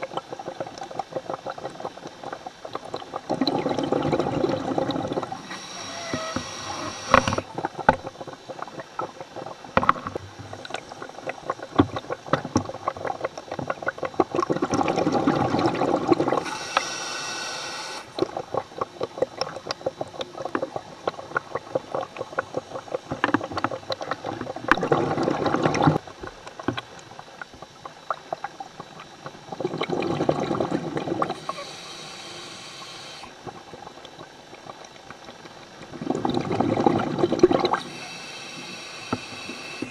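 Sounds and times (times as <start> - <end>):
exhaled bubbles rushing: 0.0 - 16.9, 17.8 - 39.9
underwater clicking and crackling: 0.0 - 39.9
diver breathing through regulator: 5.2 - 7.5, 16.4 - 18.2, 31.3 - 33.4, 37.7 - 39.9.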